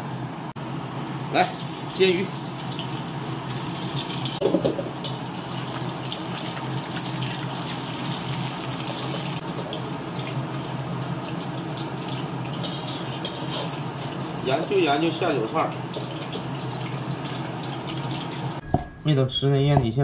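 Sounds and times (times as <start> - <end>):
fish sizzling in oil: 1.5 - 18.6
utensils tapping and scraping wok: 12.0 - 14.2.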